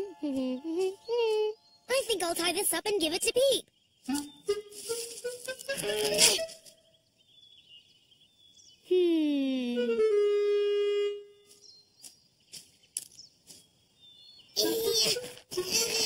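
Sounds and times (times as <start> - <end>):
woodwind sliding note: 9.8 - 11.4.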